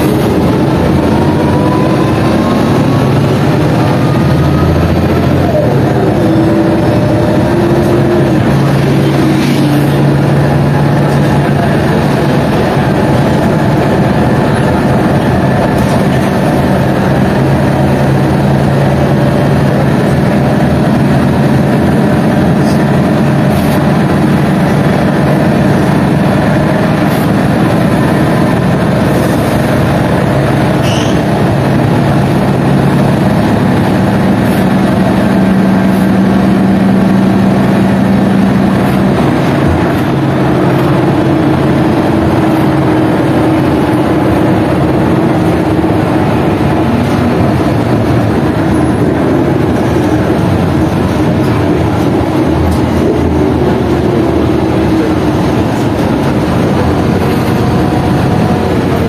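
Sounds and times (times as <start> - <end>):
bus diesel engine running: 0.0 - 59.0
road and body noise: 0.0 - 59.0
high squeak: 30.8 - 31.2.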